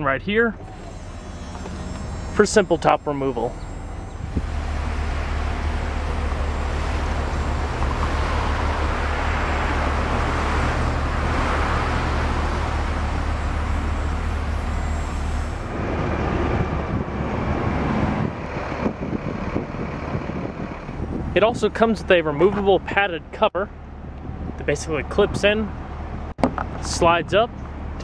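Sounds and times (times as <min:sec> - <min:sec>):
car engine idling: 0:00.0 - 0:16.0
street traffic noise: 0:00.0 - 0:28.0
convertible top motor whirring: 0:00.6 - 0:21.3.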